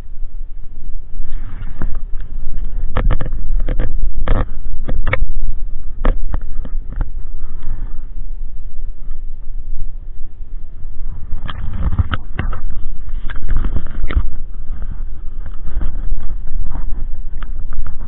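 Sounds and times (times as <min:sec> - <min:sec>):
low rumble: 0:00.0 - 0:18.0
fingers knocking and rubbing camera: 0:02.6 - 0:05.3, 0:11.4 - 0:18.0.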